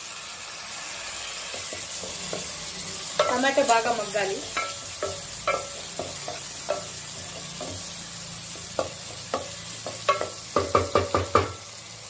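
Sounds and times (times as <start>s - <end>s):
tomatoes sizzling in a pan: 0.0s - 12.0s
spatula knocking against pan: 4.5s - 7.9s, 8.6s - 11.6s.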